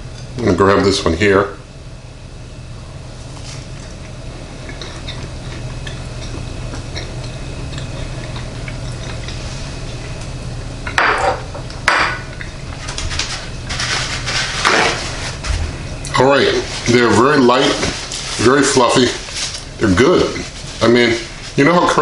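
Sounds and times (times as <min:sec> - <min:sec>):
steady low hum: 0:00.0 - 0:22.0
person chewing: 0:03.3 - 0:10.4.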